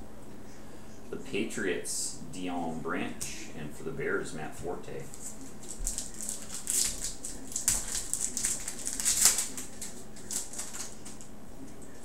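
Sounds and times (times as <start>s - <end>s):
plastic wrapper crinkling: 5.1s - 11.3s.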